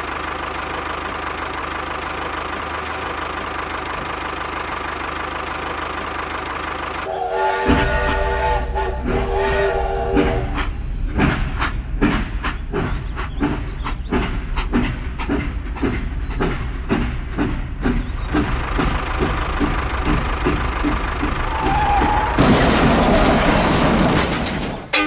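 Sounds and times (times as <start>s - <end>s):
low motor hum: 0.0s - 22.8s
toy steam whistle: 7.1s - 11.0s
toy train chugging clicks: 9.8s - 22.0s.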